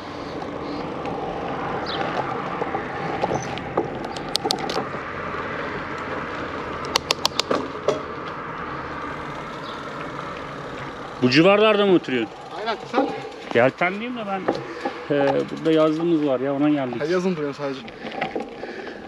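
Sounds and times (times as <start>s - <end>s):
bicycle tyre and wind noise: 0.0s - 6.9s, 7.7s - 19.0s
sharp clicks: 3.3s - 4.8s, 6.8s - 7.7s.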